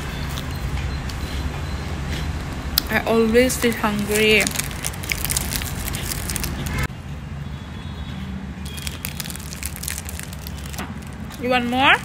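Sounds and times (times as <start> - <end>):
biscuit crunching: 3.5 - 6.9, 8.7 - 12.0.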